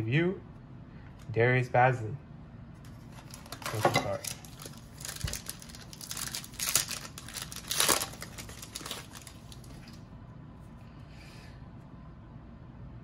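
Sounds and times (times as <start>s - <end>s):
card pack wrapper tearing: 3.1s - 10.0s.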